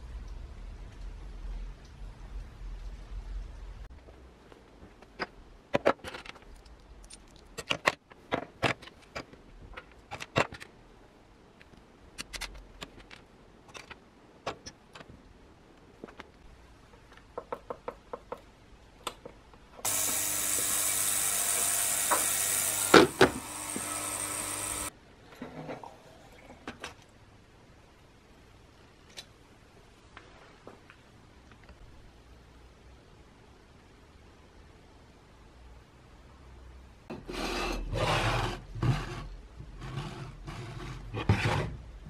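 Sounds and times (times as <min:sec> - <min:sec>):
ultrasonic cleaner buzzing hiss: 0:19.8 - 0:24.9.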